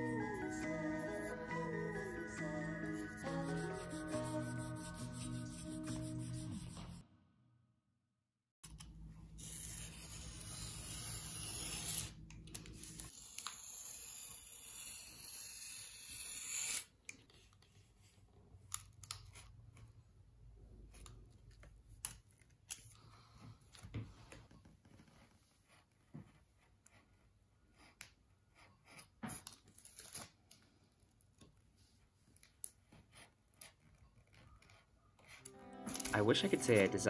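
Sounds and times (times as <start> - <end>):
craft knife cutting paper: 9.4 - 17.6.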